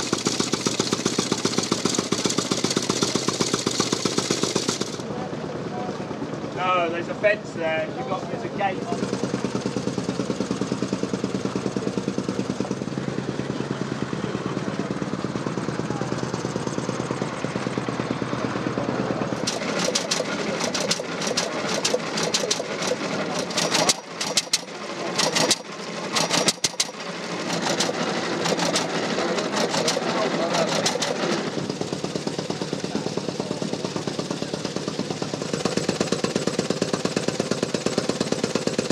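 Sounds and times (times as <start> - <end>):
motorcycle engine idling: 0.0 - 38.9
rapid crackle of sharp clicks: 19.4 - 25.6.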